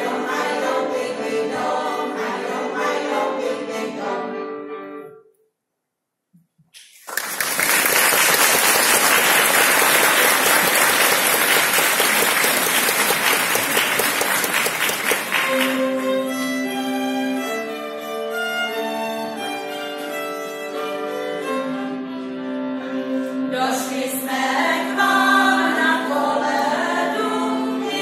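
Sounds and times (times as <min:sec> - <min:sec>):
audience applause: 0:06.9 - 0:16.3
violin playing a tune: 0:15.1 - 0:26.6.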